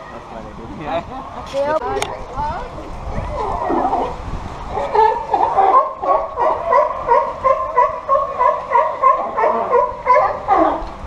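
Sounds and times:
sea lion barking: 3.2s - 11.0s.

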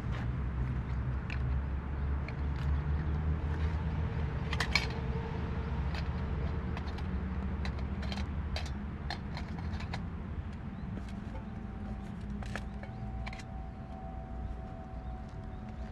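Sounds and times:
camping gear clicks and rattles: 0.0s - 15.9s
steady low rumble: 0.0s - 15.9s.

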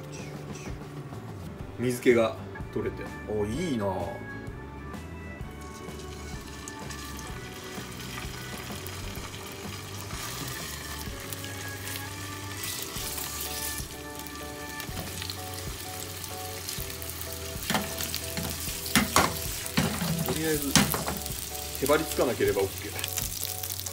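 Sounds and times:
fish sizzling in a frying pan: 5.6s - 23.9s.

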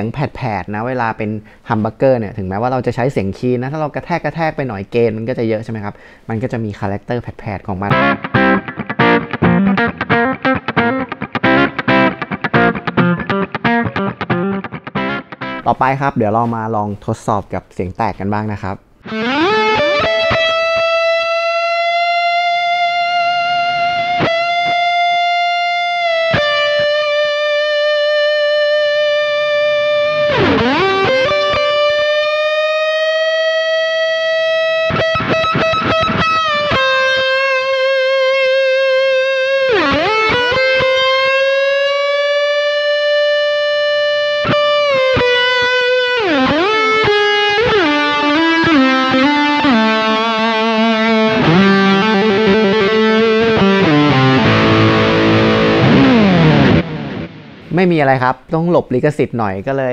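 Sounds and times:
distorted electric guitar lead: 7.9s - 16.6s, 18.9s - 57.9s.

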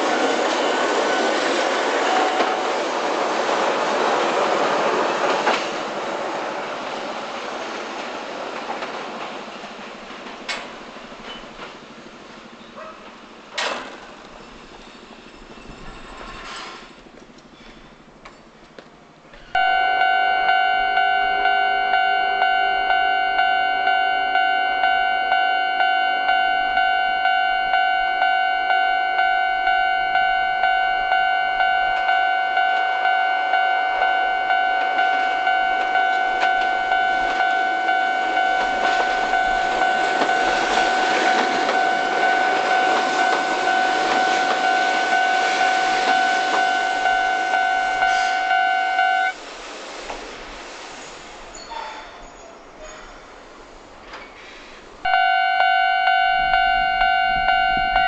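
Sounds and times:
level crossing warning bell: 0.0s - 3.5s, 19.5s - 49.4s, 55.0s - 58.0s
tram rumble: 0.0s - 58.0s.

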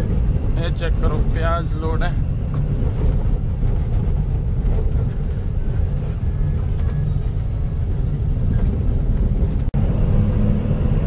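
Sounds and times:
truck engine and road rumble: 0.0s - 11.0s.

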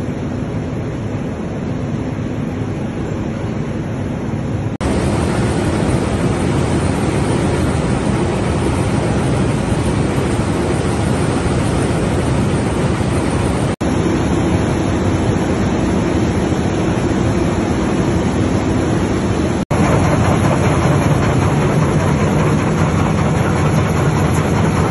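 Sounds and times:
machinery rumble and clatter: 0.0s - 24.9s
needle loom running: 19.7s - 24.9s.

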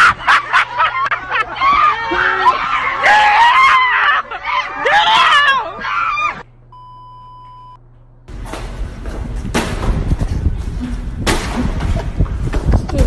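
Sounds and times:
test-tone beep: 6.8s - 7.8s.

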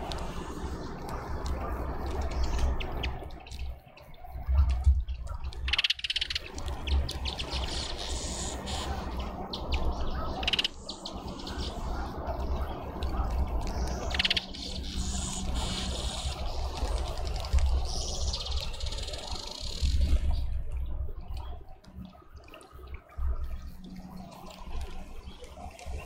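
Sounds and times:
small birds chirping: 0.0s - 26.0s
steady low rumble: 0.0s - 26.0s.

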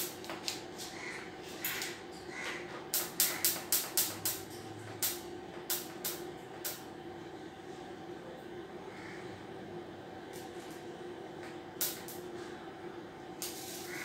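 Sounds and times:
steady electrical hum: 0.0s - 14.0s.

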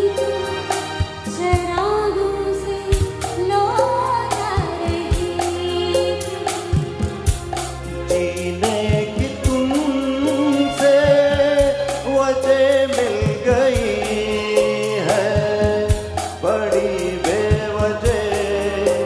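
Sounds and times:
steady percussion beat: 0.0s - 1.8s, 2.9s - 19.0s
woman singing into a microphone: 0.0s - 7.1s
keyboard accompaniment: 0.0s - 19.0s
man singing: 8.0s - 19.0s.

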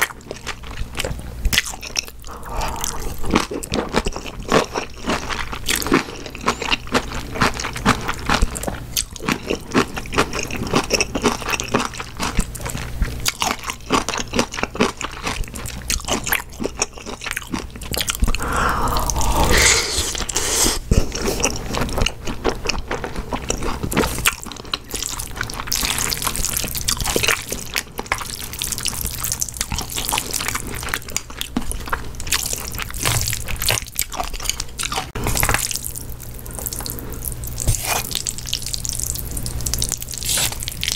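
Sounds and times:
wet chewing and crunching: 0.0s - 19.6s, 20.9s - 40.9s
slurping noodles: 2.3s - 3.8s, 18.4s - 21.6s, 40.2s - 40.7s.

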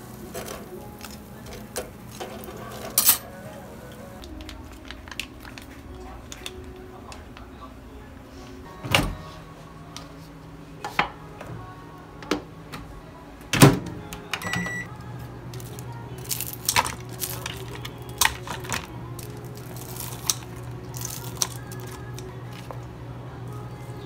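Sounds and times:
microwave humming: 0.0s - 24.0s
microwave beep: 14.2s - 14.9s
scissors and tongs clicking: 15.6s - 22.3s.

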